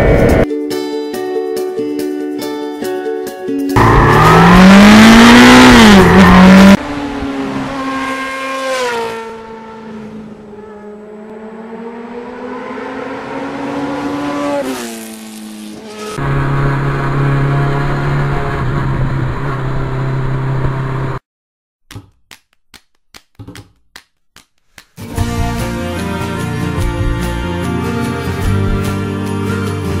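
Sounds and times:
motorcycle engine revving: 3.8 - 21.2.

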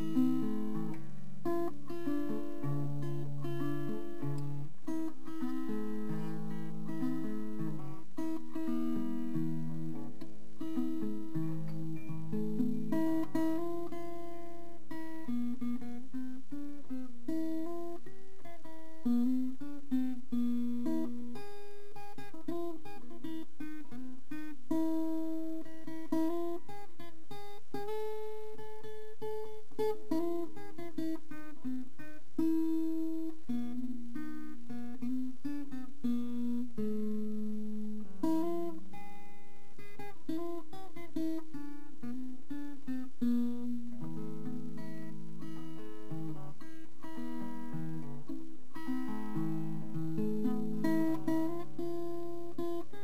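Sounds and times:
acoustic guitar melody: 0.0 - 53.0.

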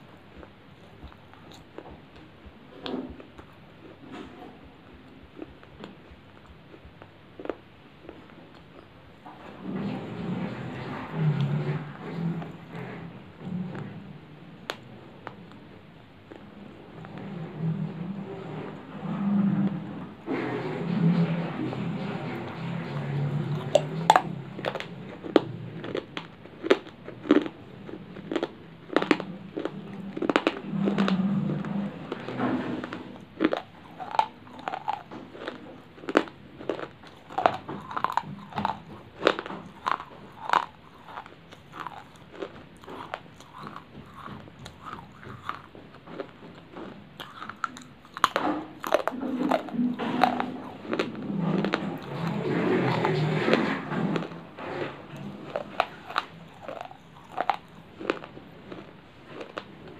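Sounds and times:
clay chips crunching: 32.1 - 53.6, 54.2 - 59.8.

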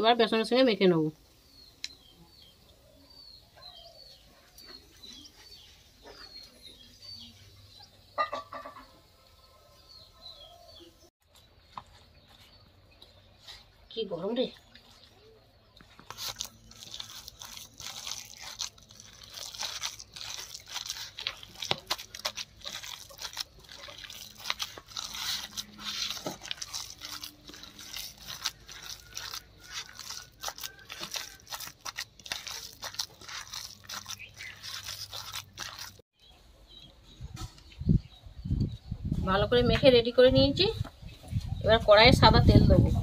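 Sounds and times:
hand mixing thick batter: 12.1 - 36.0.

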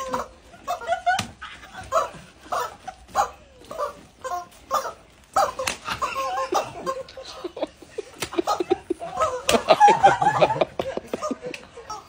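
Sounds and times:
women laughing and shrieking: 0.0 - 3.0, 5.4 - 12.0.

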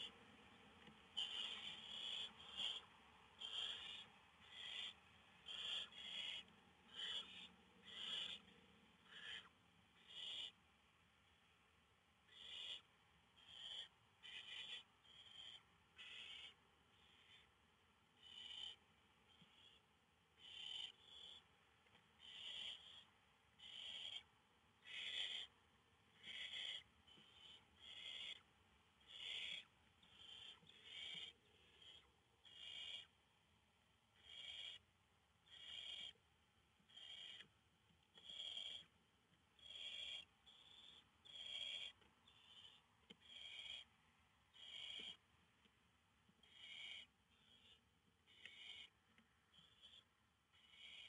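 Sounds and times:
owl chicks hissing calls: 1.2 - 10.6, 12.3 - 17.5, 18.2 - 19.8, 20.4 - 21.4, 22.2 - 33.2, 34.2 - 34.9, 35.5 - 36.2, 36.9 - 37.5, 38.2 - 38.9, 39.6 - 43.9, 44.6 - 45.2, 46.4 - 51.0.

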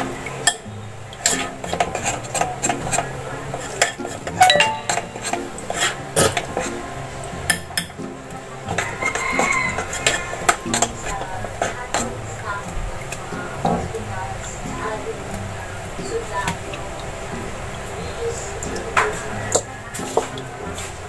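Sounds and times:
spoon stirring thick batter: 1.2 - 4.4, 8.8 - 12.2
spoon clinking against bowl: 4.4 - 5.5.

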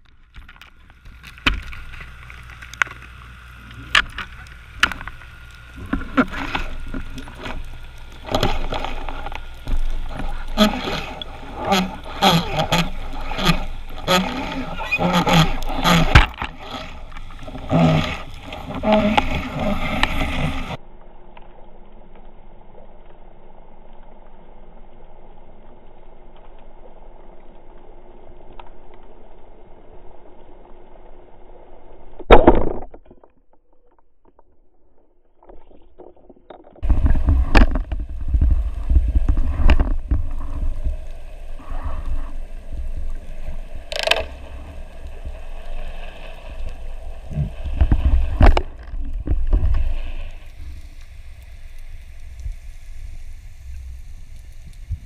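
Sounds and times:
underwater water noise and knocks: 0.0 - 20.8, 32.2 - 50.8
steady underwater hum: 0.0 - 32.3, 34.0 - 55.0
loud churning water: 1.0 - 20.8, 35.9 - 51.0.

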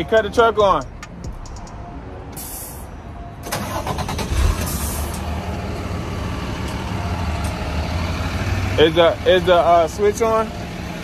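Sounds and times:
diesel engine running: 2.3 - 11.0.

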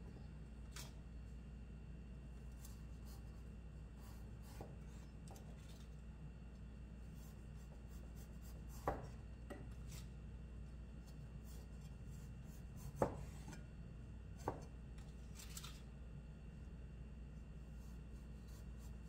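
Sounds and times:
steady low hum: 0.0 - 19.0
knife chopping on wooden board: 4.4 - 4.8, 8.4 - 9.8, 12.8 - 13.6, 14.4 - 14.7.

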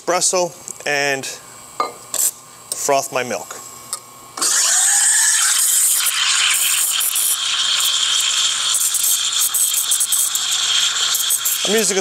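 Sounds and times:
steam wand frothing milk: 4.4 - 12.0.

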